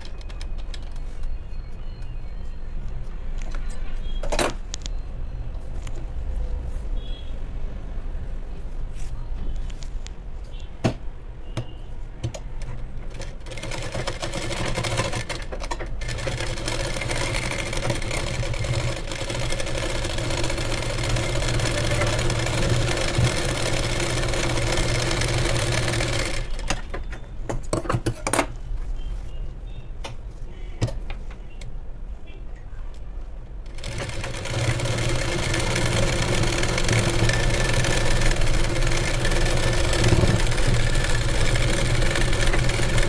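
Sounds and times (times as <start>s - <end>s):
sewing machine stitching: 13.1s - 26.9s, 33.7s - 43.0s.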